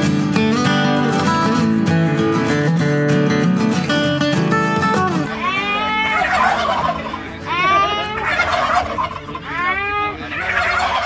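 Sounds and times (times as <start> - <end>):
turkeys gobbling: 5.3 - 11.0.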